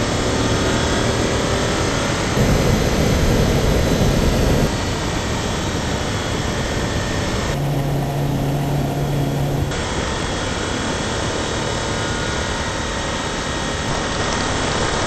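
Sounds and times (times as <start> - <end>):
car engine inside cabin: 0.0 - 10.2
road and wind noise: 0.0 - 10.2
steady low drone: 0.0 - 14.2.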